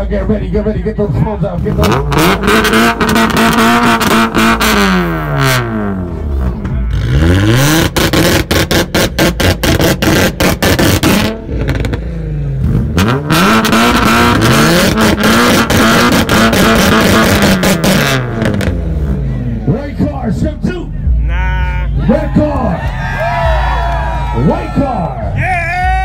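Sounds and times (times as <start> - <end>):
car engine revving on limiter: 1.6 - 19.7.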